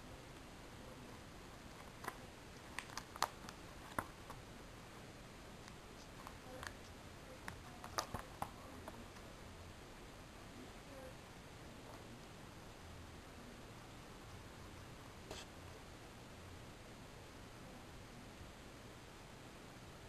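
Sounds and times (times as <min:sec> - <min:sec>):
faint steady hiss: 0:00.0 - 0:20.0
plastic binder pages clicking: 0:01.7 - 0:04.4, 0:07.5 - 0:08.6.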